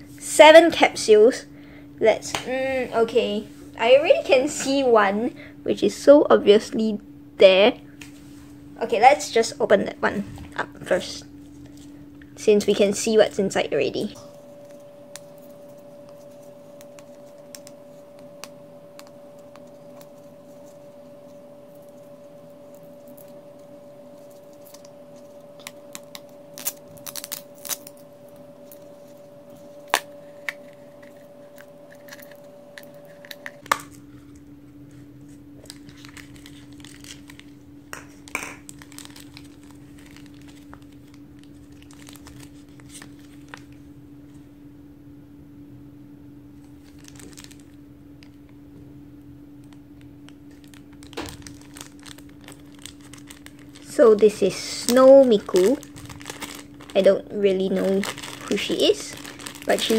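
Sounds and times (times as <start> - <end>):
faint steady hum: 0.0 - 59.9
plastic crinkling and rustling: 22.7 - 34.4, 35.2 - 43.8, 46.6 - 48.4, 49.6 - 59.9.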